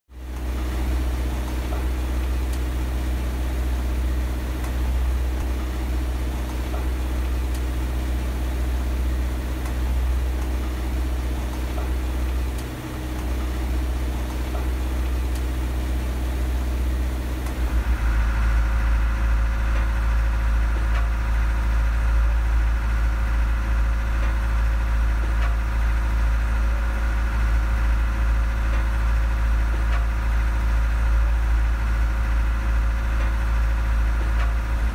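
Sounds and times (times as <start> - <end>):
diesel engine humming: 0.2 - 20.7
high machine whine: 0.2 - 21.6.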